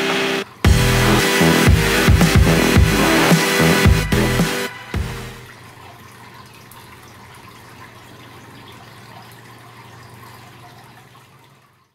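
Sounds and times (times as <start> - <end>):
aquarium water trickling: 0.4 - 0.7, 4.7 - 11.9.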